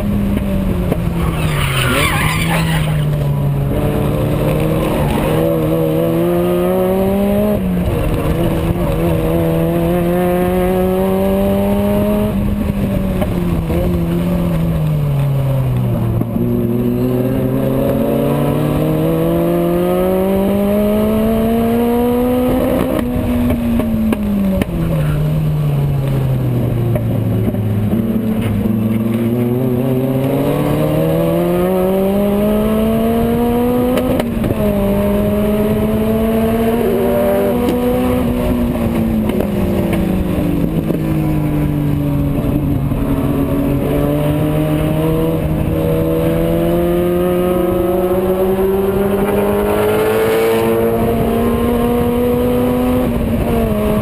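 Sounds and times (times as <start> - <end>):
race car engine revving: 0.0 - 14.8, 26.1 - 54.0.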